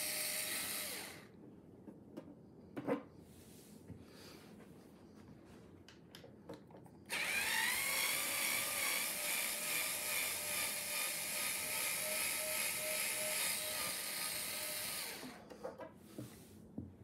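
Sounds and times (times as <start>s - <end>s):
electric screwdriver motor whirring: 0.0s - 1.3s, 7.1s - 15.4s.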